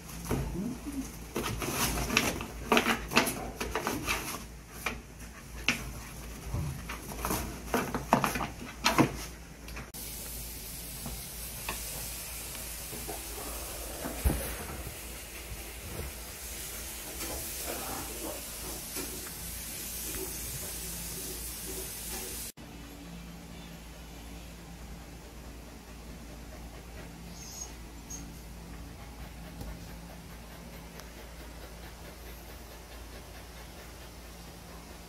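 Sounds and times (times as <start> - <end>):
steady hiss: 9.5 - 22.6.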